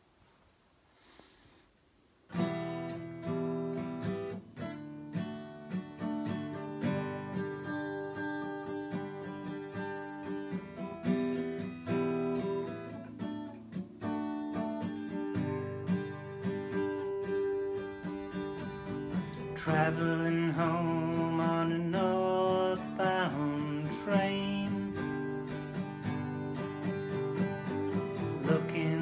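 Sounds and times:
acoustic guitar picked chords: 2.3 - 29.0.

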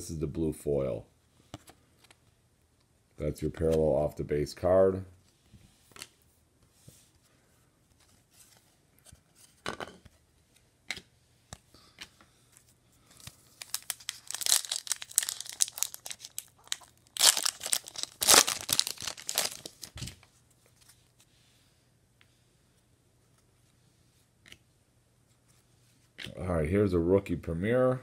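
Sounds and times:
cards clicking and knocking: 10.8 - 12.2
foil wrapper tearing and crinkling: 13.5 - 20.2.

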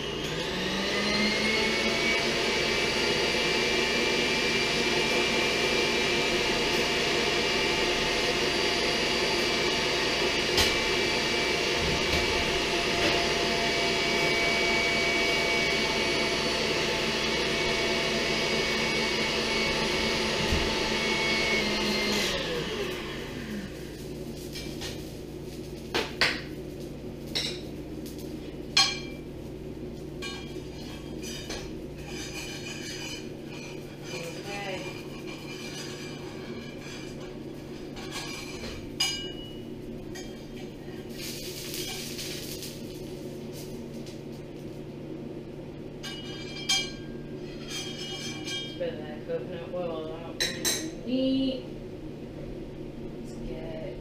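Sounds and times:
stand mixer motor whirring: 0.0 - 23.9.

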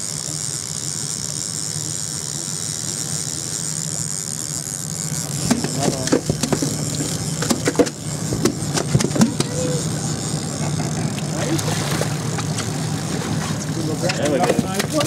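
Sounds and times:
outboard motors idling: 0.0 - 15.0
sharp knocks and clicks: 5.3 - 9.6.

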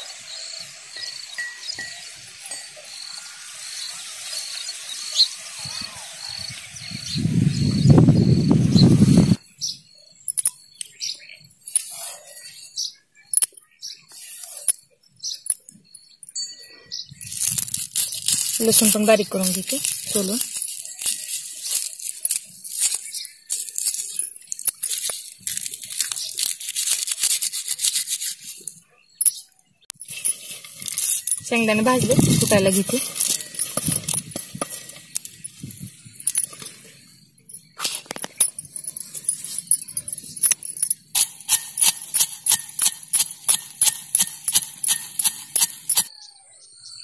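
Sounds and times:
cricket chirping: 0.0 - 11.0
wind rumbling on microphone: 5.6 - 9.4, 31.4 - 36.5
garlic skins crackling while peeled: 17.2 - 28.7
peanuts poured into a mortar: 17.2 - 28.8, 30.0 - 35.6.

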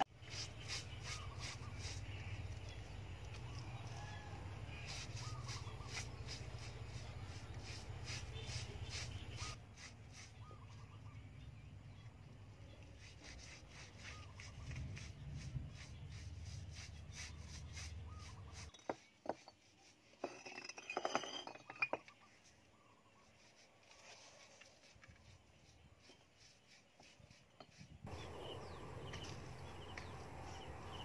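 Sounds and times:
brush scrubbing on cement wall: 0.1 - 2.7, 3.9 - 10.9, 12.7 - 20.2, 23.2 - 28.2.

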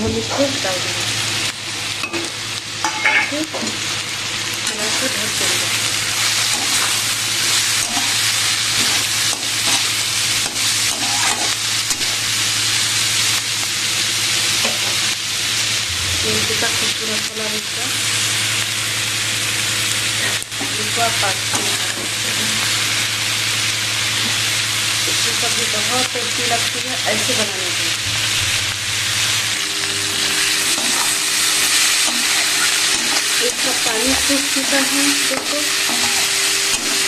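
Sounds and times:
beans sizzling in hot oil: 0.0 - 37.0
spatula scraping pan: 4.6 - 12.2, 29.6 - 37.0
steady low hum: 15.1 - 37.0.

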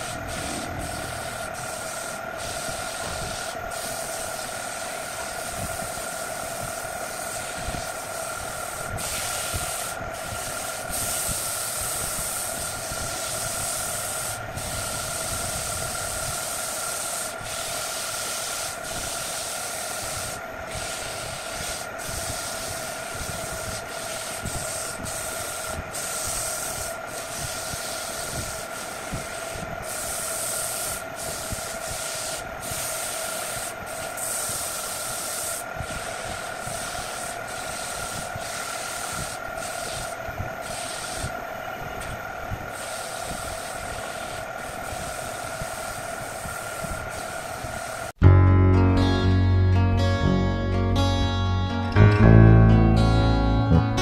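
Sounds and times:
lathe motor whine: 0.0 - 10.8
sandpaper rubbing hiss: 0.0 - 41.5, 42.7 - 48.1.

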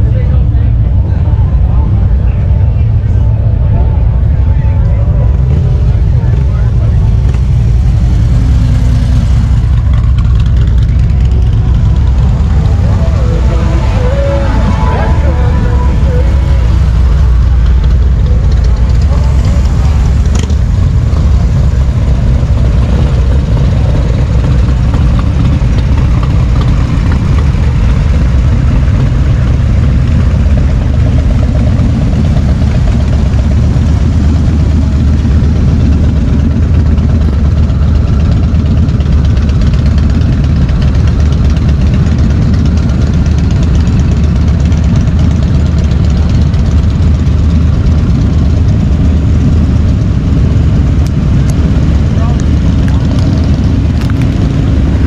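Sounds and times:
motorcycle engines idling: 0.0 - 55.0.

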